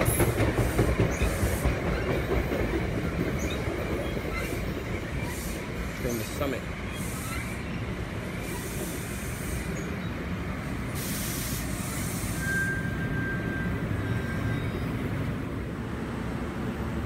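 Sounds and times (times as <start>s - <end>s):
train hiss: 0.0s - 2.0s, 4.4s - 14.0s
train rumbling on rails: 0.0s - 17.0s
high-pitched wheel squeal: 12.0s - 15.0s.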